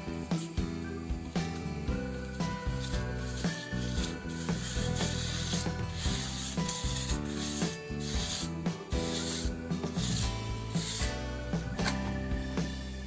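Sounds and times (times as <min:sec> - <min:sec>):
background music: 0:00.0 - 0:13.0
trowel scraping wet mortar: 0:02.8 - 0:11.2.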